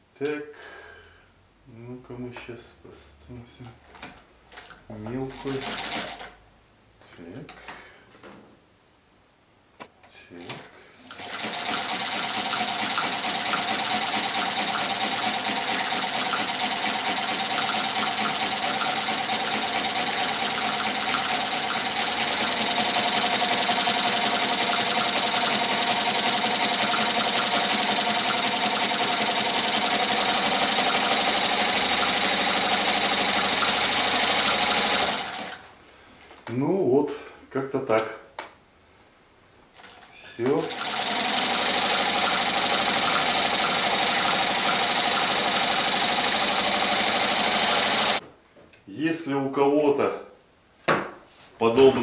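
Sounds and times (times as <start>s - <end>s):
sewing machine running: 5.3s - 6.4s, 11.1s - 35.6s, 39.8s - 48.2s.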